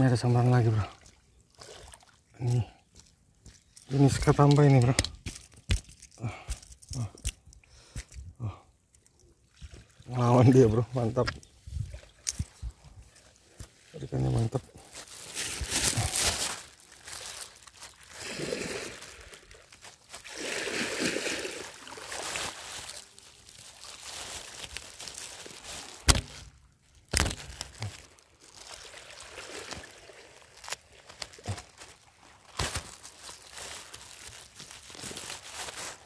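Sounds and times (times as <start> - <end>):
seawater sloshing and trickling: 0.8 - 2.4, 9.1 - 10.7, 11.4 - 36.0.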